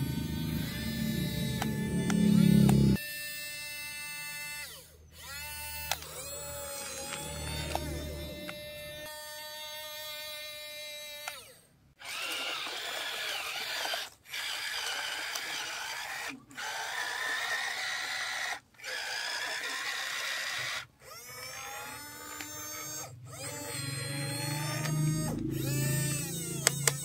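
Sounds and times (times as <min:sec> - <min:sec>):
deeper hum: 0:00.0 - 0:03.0, 0:06.0 - 0:09.1, 0:22.4 - 0:27.0
toy excavator gear motors whining: 0:00.0 - 0:27.0.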